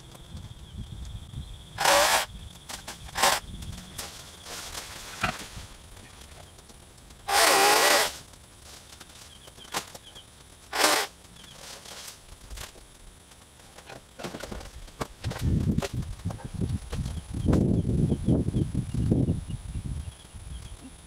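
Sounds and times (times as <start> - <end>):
chainsaw cutting limbs: 1.8 - 5.5, 7.2 - 8.3, 10.7 - 12.7.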